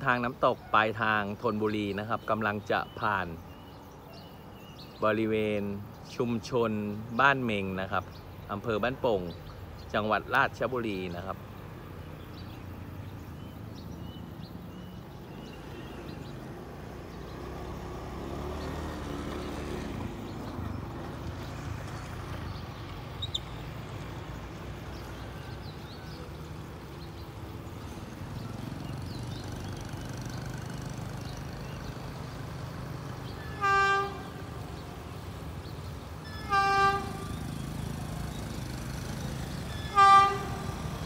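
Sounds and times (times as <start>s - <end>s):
diesel locomotive rumbling: 15.1s - 41.0s
locomotive horn blast: 33.2s - 35.5s, 36.1s - 41.0s.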